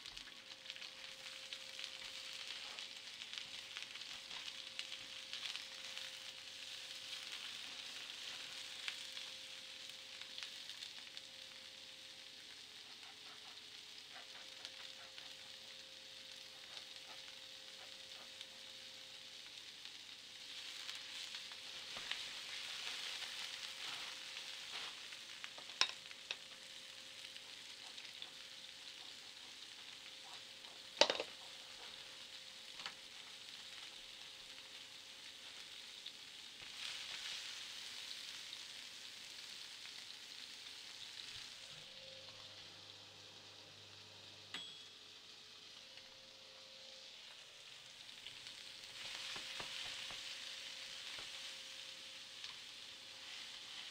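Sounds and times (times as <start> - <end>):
steady hiss: 0.0 - 53.9
faint hum: 40.3 - 49.3
sharp glass clink: 44.6 - 45.0.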